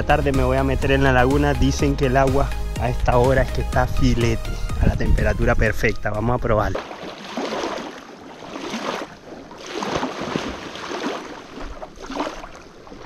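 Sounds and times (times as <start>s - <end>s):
water splashing around wading person: 6.7s - 13.0s.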